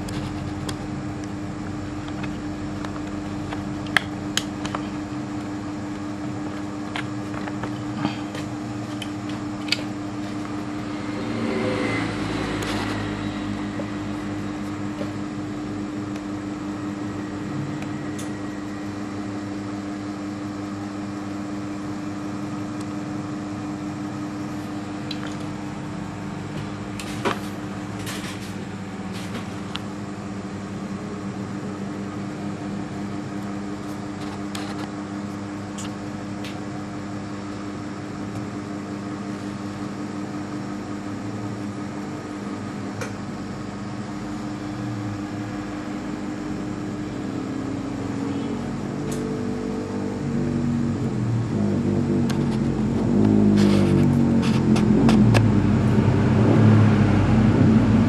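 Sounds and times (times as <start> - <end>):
mechanical hum: 0.0 - 58.0.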